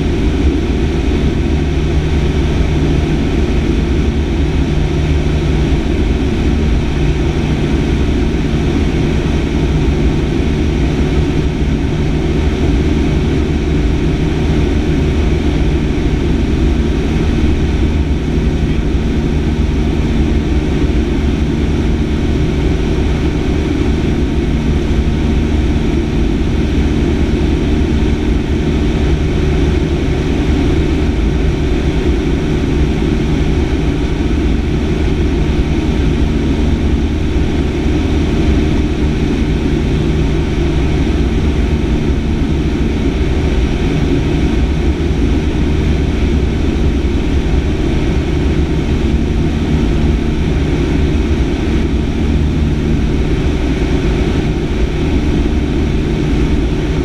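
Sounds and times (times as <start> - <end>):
airplane engine and propeller: 0.0 - 57.0.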